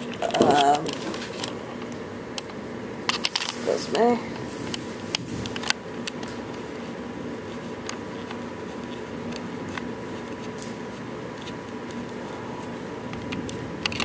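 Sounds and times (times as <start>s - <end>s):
background hum: 0.0s - 14.0s.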